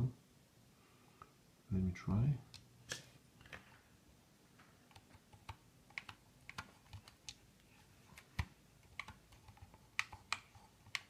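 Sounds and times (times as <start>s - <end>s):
faint keyboard keystrokes: 4.9s - 7.4s, 8.1s - 11.0s.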